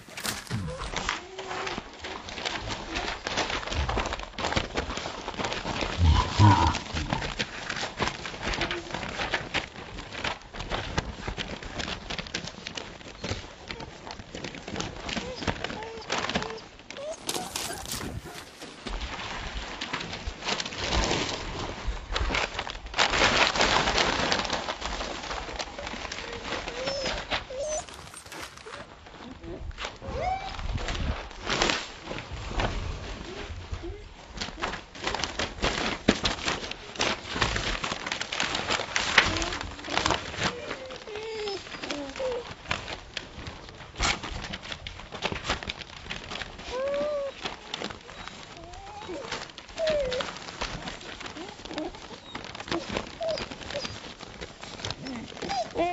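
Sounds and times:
paw clicks: 0:00.0 - 0:19.0, 0:22.2 - 0:29.0, 0:33.8 - 0:55.9
paper rustling and crackling: 0:00.0 - 0:55.9
puppy whimpering: 0:00.4 - 0:02.2, 0:15.0 - 0:18.7, 0:25.8 - 0:30.7, 0:39.2 - 0:42.6, 0:46.6 - 0:55.9.

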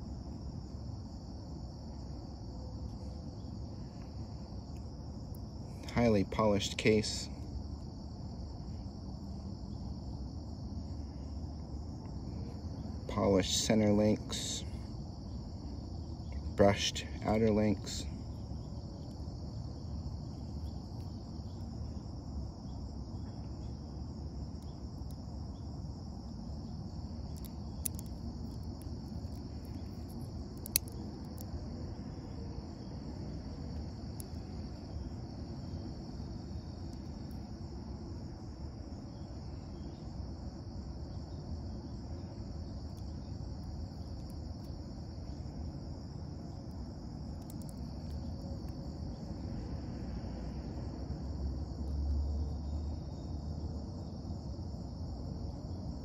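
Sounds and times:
low outdoor rumble: 0:00.0 - 0:56.0
high-pitched insect chirring: 0:12.4 - 0:49.4
sharp clicks: 0:27.3 - 0:31.5, 0:47.4 - 0:48.8.

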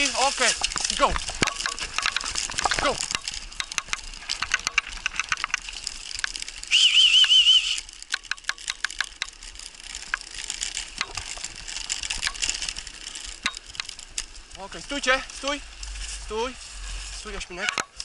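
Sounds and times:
cart wheels clicking on dirt track: 0:00.0 - 0:18.0
loud trilled whistle: 0:06.7 - 0:07.8.

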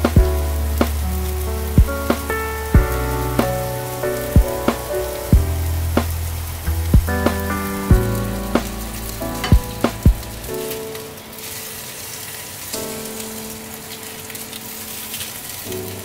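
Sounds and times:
background music: 0:00.0 - 0:11.8
meat sizzling in a pan: 0:10.6 - 0:16.0.

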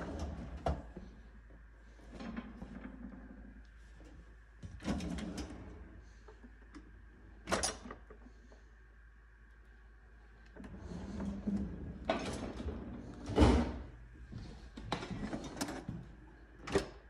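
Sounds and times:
drawer sliding rumble: 0:00.0 - 0:01.0, 0:04.8 - 0:06.0, 0:10.6 - 0:13.9, 0:14.9 - 0:15.9.

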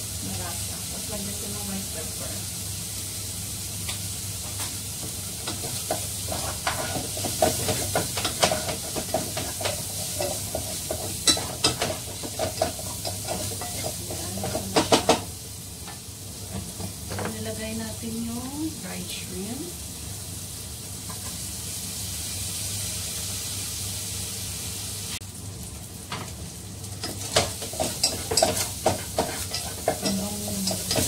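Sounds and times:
food sizzling in a frying pan: 0:00.0 - 0:31.0
spatula scraping a pan: 0:05.4 - 0:15.2, 0:27.0 - 0:31.0
spatula knocking on pan: 0:05.5 - 0:15.3, 0:27.1 - 0:31.0.

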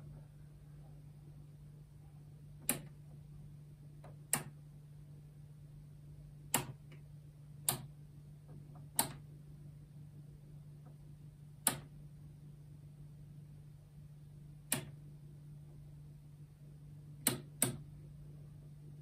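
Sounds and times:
steady low hum: 0:00.0 - 0:19.0
knob clicking: 0:02.6 - 0:03.0, 0:04.0 - 0:04.6, 0:06.5 - 0:07.0, 0:07.6 - 0:07.9, 0:08.8 - 0:09.2, 0:11.6 - 0:11.9, 0:14.7 - 0:15.0, 0:17.2 - 0:17.8.

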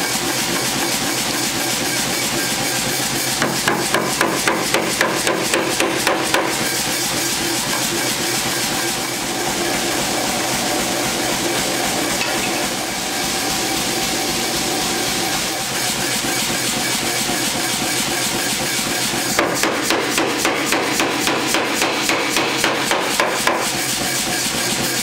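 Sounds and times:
steady machine noise: 0:00.0 - 0:25.0
power hammer striking hot steel: 0:00.5 - 0:09.8, 0:11.8 - 0:13.3, 0:19.2 - 0:24.4.

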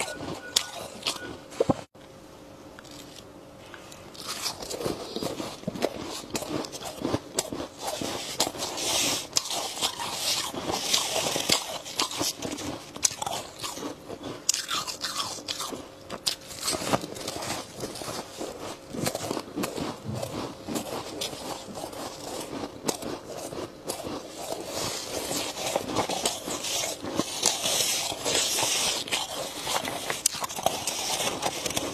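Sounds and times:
chewing crunchy ice: 0:00.0 - 0:01.3, 0:04.1 - 0:31.9
hand scooping ice: 0:23.9 - 0:31.9.

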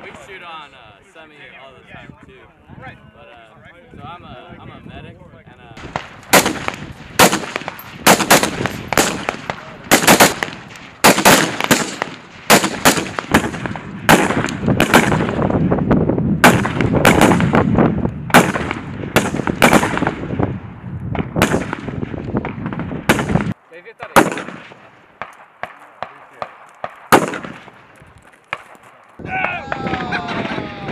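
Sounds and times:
rifle shots with echo: 0:05.8 - 0:15.7, 0:16.4 - 0:20.5, 0:21.1 - 0:27.9.

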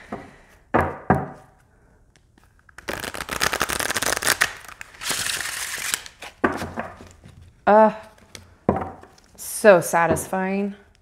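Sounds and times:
cards being riffle-shuffled: 0:02.2 - 0:07.2.

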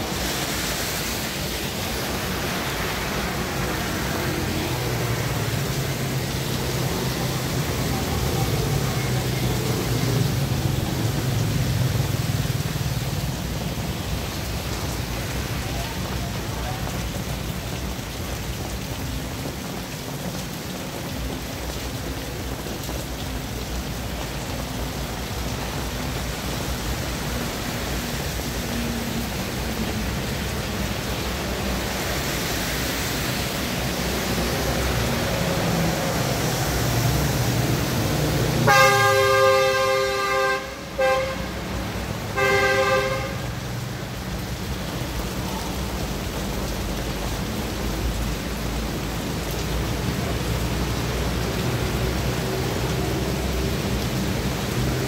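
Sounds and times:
steady rain: 0:00.0 - 0:55.0
traffic on a wet road: 0:00.0 - 0:55.0
vehicle horn honking: 0:38.6 - 0:41.6, 0:42.4 - 0:43.4.

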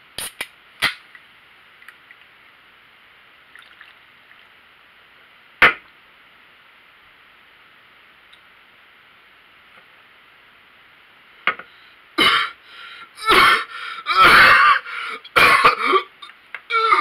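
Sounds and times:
man coughing hard: 0:12.2 - 0:12.6, 0:13.2 - 0:16.1.

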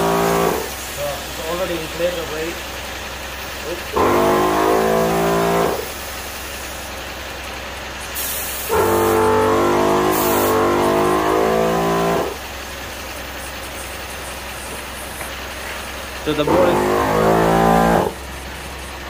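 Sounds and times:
air compressor motor whine: 0:00.0 - 0:02.6, 0:03.6 - 0:06.9, 0:08.2 - 0:19.0
short air hisses: 0:08.0 - 0:09.3, 0:10.0 - 0:10.9.

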